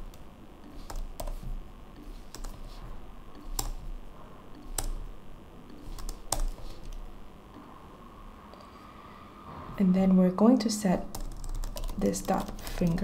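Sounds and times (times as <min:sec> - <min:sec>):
typing on computer keyboard: 0:00.7 - 0:01.4, 0:02.2 - 0:02.7, 0:03.4 - 0:03.8, 0:04.6 - 0:05.0, 0:05.7 - 0:07.0, 0:11.1 - 0:13.0.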